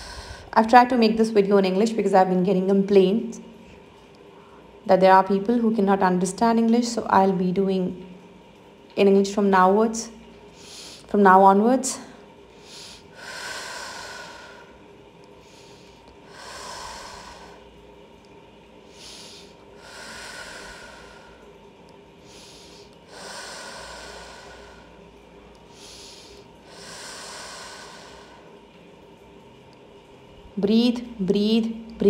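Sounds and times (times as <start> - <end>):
slow deep breathing: 0.0 - 0.6, 3.6 - 4.8, 10.5 - 11.1, 12.1 - 18.0, 18.8 - 28.8.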